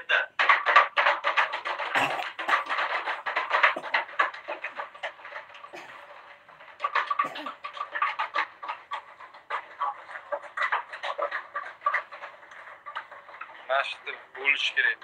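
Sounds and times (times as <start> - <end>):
plastic bottle being crushed: 0.0 - 11.0.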